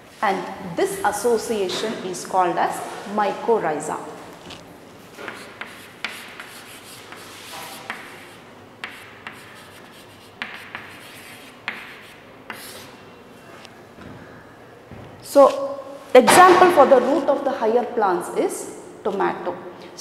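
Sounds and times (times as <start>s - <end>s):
chalk tapping on board: 5.2s - 12.9s
chalk scratching on chalkboard: 5.2s - 13.0s.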